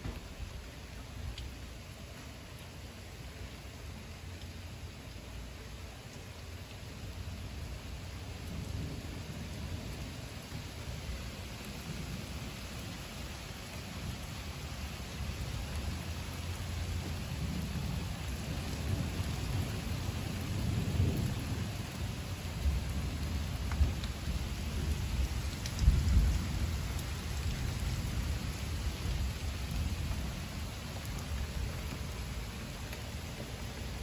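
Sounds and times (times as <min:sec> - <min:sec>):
heavy rain falling: 0:00.0 - 0:34.0
low rolling thunder: 0:08.2 - 0:12.5, 0:15.2 - 0:32.4.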